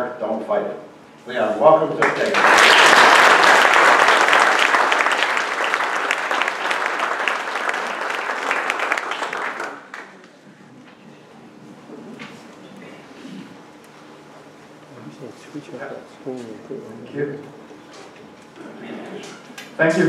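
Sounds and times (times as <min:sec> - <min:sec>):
audience applauding: 0:02.0 - 0:10.3.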